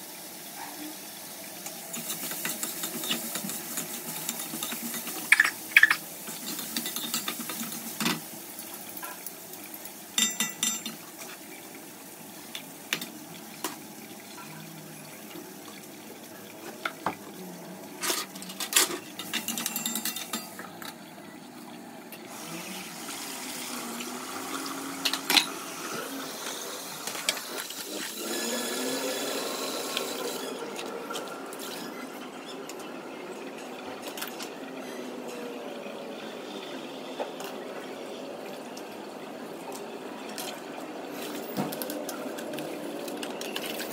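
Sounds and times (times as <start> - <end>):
pots and utensils clinking: 1.6 - 8.3, 10.1 - 11.6, 18.0 - 21.0, 24.9 - 25.6.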